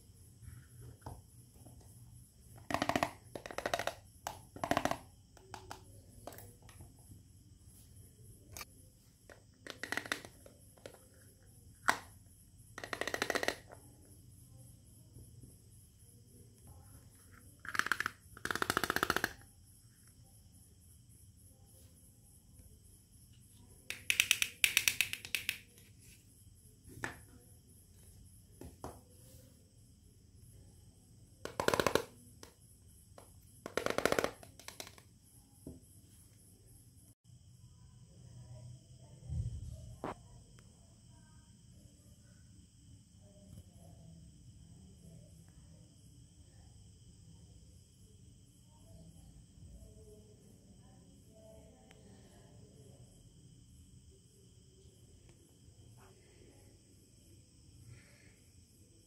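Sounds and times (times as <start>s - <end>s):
plastic toy pieces clicking and rattling: 2.7s - 5.0s, 9.6s - 11.0s, 12.8s - 13.8s, 17.6s - 19.4s, 23.9s - 25.6s, 33.7s - 35.0s
rapid plastic clicking: 17.6s - 19.4s.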